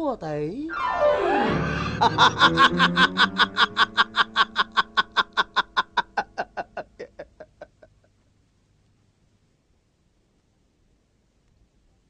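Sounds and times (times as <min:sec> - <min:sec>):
man laughing: 0:02.0 - 0:08.1.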